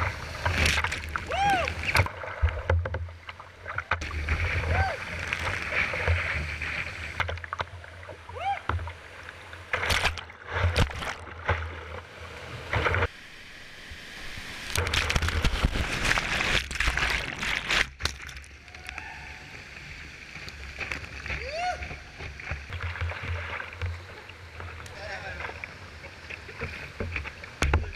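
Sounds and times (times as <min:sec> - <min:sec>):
whitewater rushing and splashing: 0:00.0 - 0:17.9.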